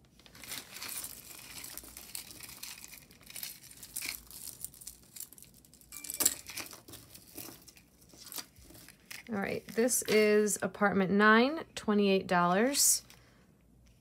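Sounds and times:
plastic bag crinkling: 0:00.0 - 0:10.3
metal pieces clinking: 0:00.7 - 0:07.8.

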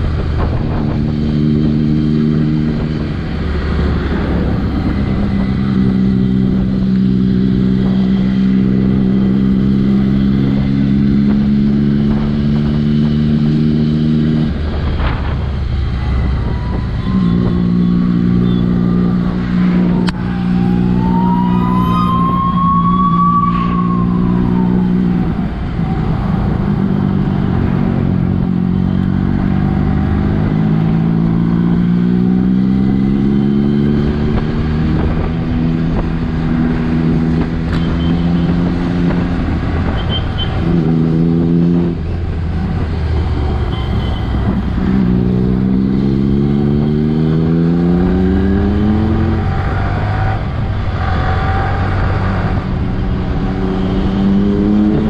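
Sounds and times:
motorcycle engine accelerating: 0:00.0 - 0:55.0
wind and road noise: 0:00.0 - 0:55.0.

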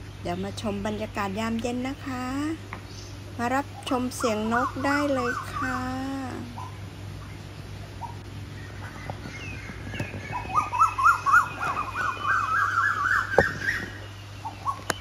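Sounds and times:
other birds calling faintly: 0:00.0 - 0:15.0
koel calling rising notes: 0:10.3 - 0:14.8.

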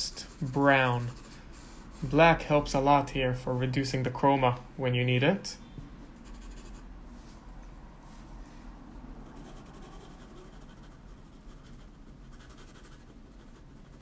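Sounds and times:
pencil scratching on paper: 0:00.0 - 0:02.5, 0:06.2 - 0:06.9, 0:09.2 - 0:14.0.

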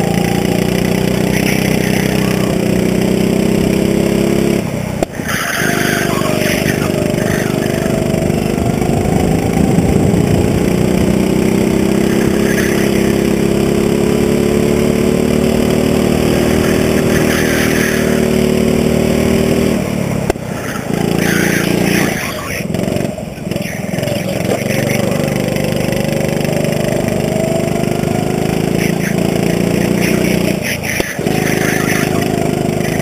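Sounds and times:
go-kart engine at full throttle: 0:00.0 - 0:33.0.

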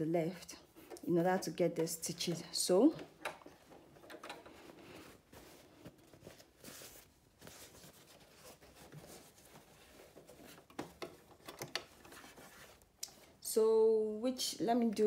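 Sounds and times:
fabric rustling: 0:02.4 - 0:13.0.

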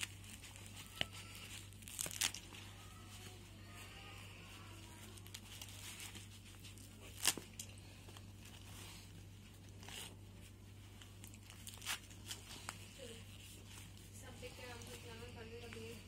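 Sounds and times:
sharp leather crackles: 0:00.0 - 0:03.5, 0:04.8 - 0:14.2
leather gloves rustling: 0:00.0 - 0:16.0.

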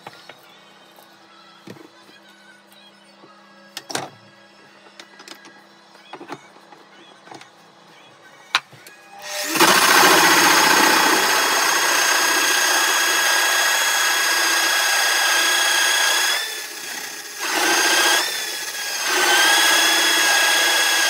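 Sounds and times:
pillar drill whining: 0:09.0 - 0:21.0.

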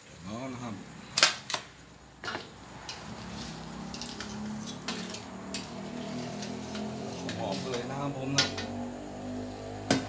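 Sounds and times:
deep-frying in hot oil: 0:01.2 - 0:08.7.

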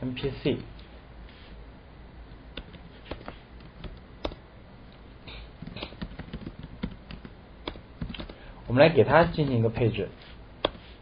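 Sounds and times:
faint low hum: 0:00.0 - 0:11.0
keyboard typing: 0:02.6 - 0:04.4, 0:05.6 - 0:08.4.

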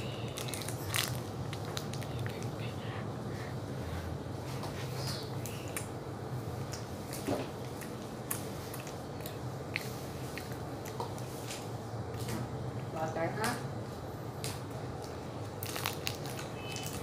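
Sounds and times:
small clicks and crackles: 0:14.4 - 0:17.0.

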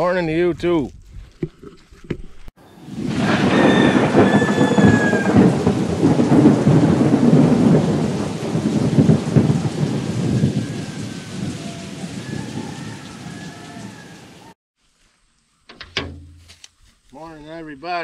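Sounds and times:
steady rain: 0:02.7 - 0:14.6
thunder rumbling: 0:02.8 - 0:14.5.

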